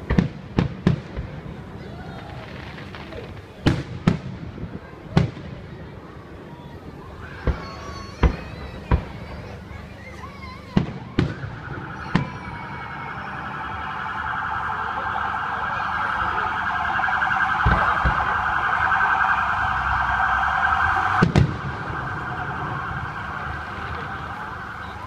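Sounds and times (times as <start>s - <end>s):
fireworks banging: 0.0s - 5.7s, 7.4s - 9.6s, 10.6s - 25.0s
warbling alarm-like tone: 11.6s - 25.0s.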